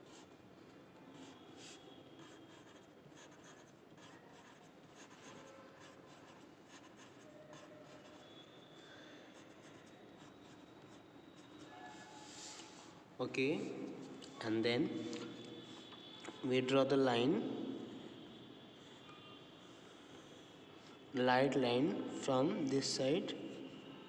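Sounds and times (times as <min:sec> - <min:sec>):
pencil scratching on paper: 0:01.1 - 0:08.4.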